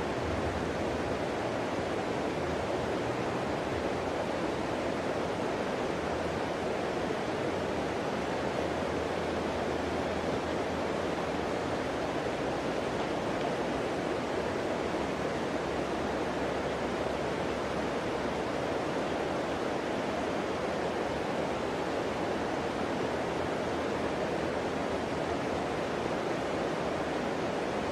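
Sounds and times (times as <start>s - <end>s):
river water rushing: 0.0s - 27.9s.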